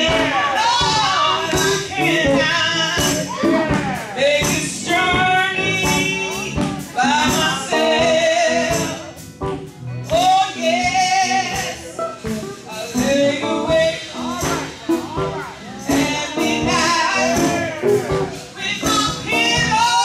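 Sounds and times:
woman singing gospel: 0.0 - 9.2, 10.0 - 12.0, 12.7 - 20.0
band playing: 0.0 - 20.0.

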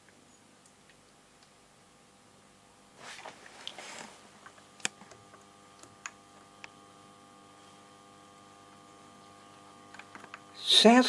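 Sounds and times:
radio static with crackles: 3.0 - 11.0.

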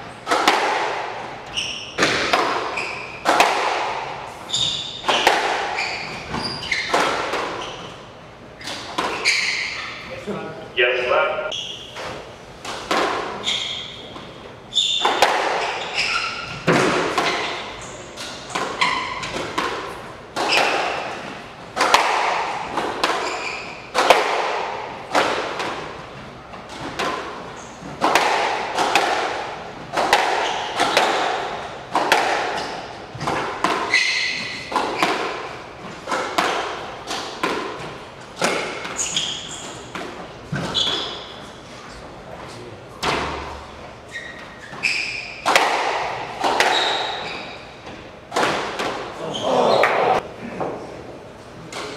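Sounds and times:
squash ball hit by rackets: 0.2 - 7.9, 8.6 - 9.6, 12.1 - 13.4, 14.9 - 26.0, 26.6 - 41.4, 43.0 - 43.6, 44.9 - 50.2
shoes squeaking on wooden floor: 1.4 - 3.4, 4.4 - 10.2, 13.3 - 19.4, 23.1 - 23.9, 32.6 - 36.1, 37.8 - 42.5, 44.0 - 45.5, 46.4 - 48.1, 49.2 - 50.2.

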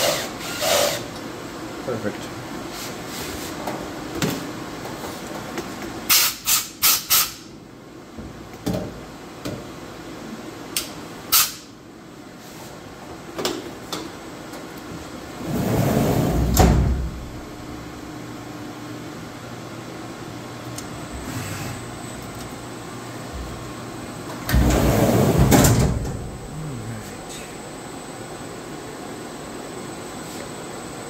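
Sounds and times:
enclosure door sliding shut: 15.4 - 17.3, 24.4 - 26.4.

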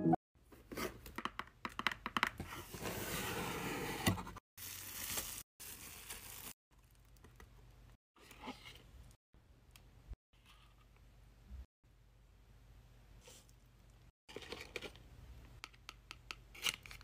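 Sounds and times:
bubble wrap crinkling: 4.6 - 6.6.

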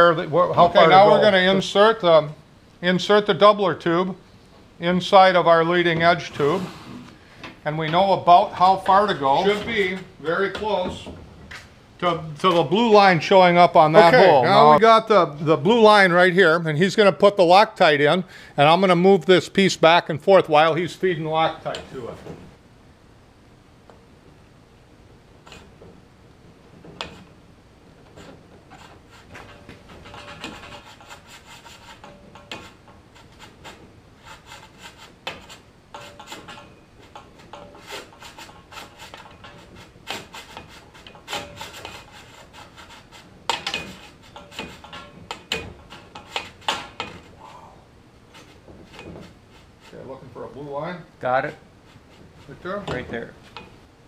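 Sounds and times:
metal tube rubbing and scraping: 25.4 - 25.8, 26.8 - 27.4, 28.0 - 47.6, 48.2 - 50.5, 51.4 - 53.9.

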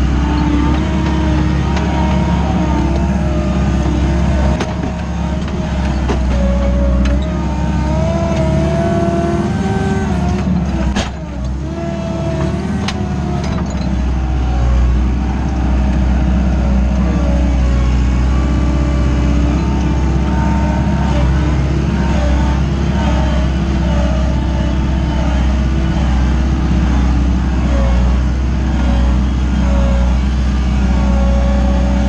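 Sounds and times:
diesel engine working under load: 0.0 - 32.0
sharp clunks: 10.9 - 11.3.

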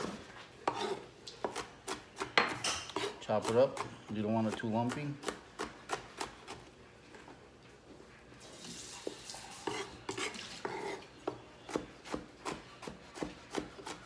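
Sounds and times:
knife scraping across board: 0.0 - 1.7, 2.3 - 3.2, 9.4 - 11.1
knife chopping on wooden board: 0.0 - 6.6, 9.6 - 14.0.

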